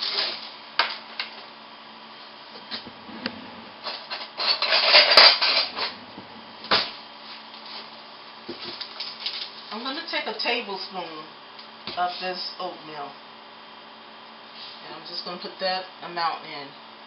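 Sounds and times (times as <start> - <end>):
kitchen utensils clattering: 3.8 - 6.1.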